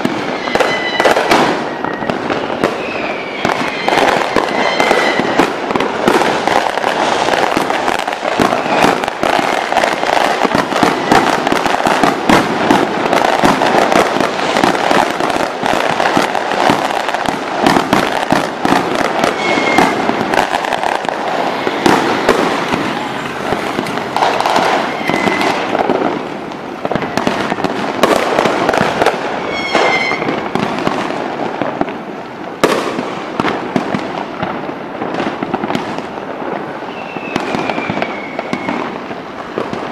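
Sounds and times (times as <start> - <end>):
firework whistles: 0.0 - 31.0, 36.7 - 39.9
fireworks crackling and popping: 0.0 - 39.9.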